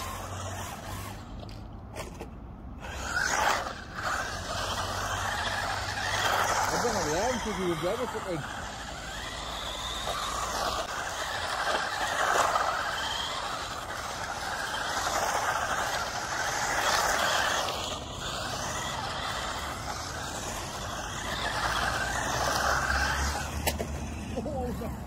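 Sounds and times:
electric motor whine: 0.0 - 2.2, 2.8 - 25.0
tyres hissing on asphalt: 0.0 - 25.0.

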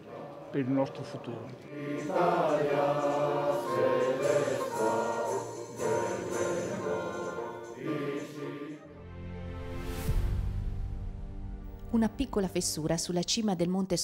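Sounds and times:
choir singing held notes: 0.0 - 9.2.

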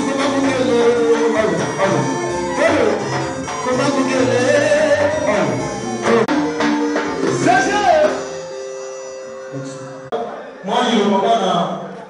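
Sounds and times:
person singing: 0.0 - 6.6
music: 0.0 - 12.0.

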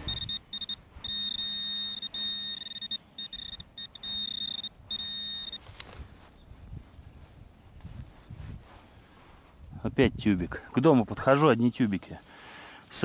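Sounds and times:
metal detector high-pitched beep: 0.0 - 5.7
soil rustling by hand: 3.9 - 9.9.

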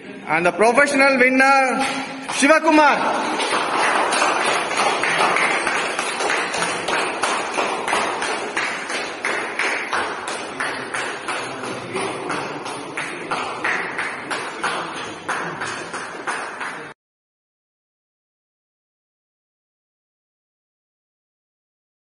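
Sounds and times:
rhythmic hand clapping: 1.7 - 17.0.

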